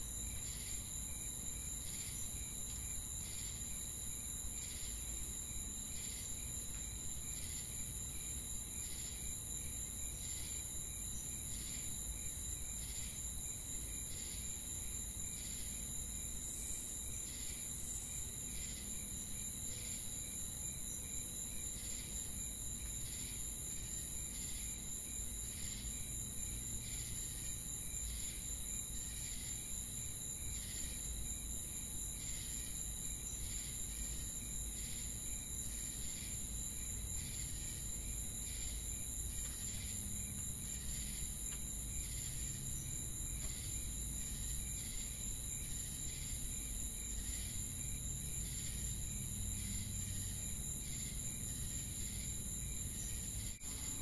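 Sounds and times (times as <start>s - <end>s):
crickets trilling: 0.0s - 54.0s
repeating insect chirp: 32.2s - 54.0s.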